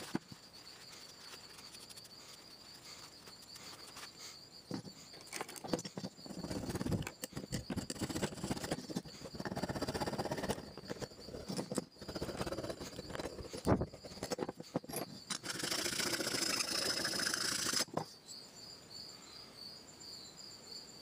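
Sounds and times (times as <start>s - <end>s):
crickets trilling: 0.0s - 21.0s
scratchy scraping on metal: 5.6s - 17.9s.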